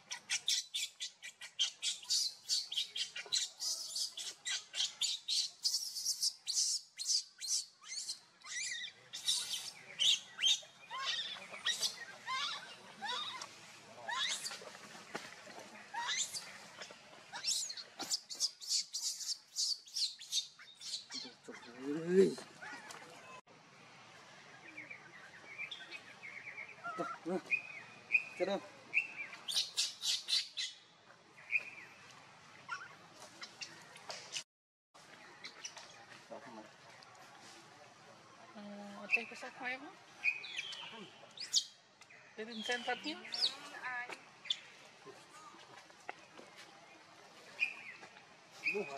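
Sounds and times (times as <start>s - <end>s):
baby monkey squealing: 0.1s - 13.4s, 14.1s - 14.6s, 16.0s - 16.5s, 17.3s - 21.7s.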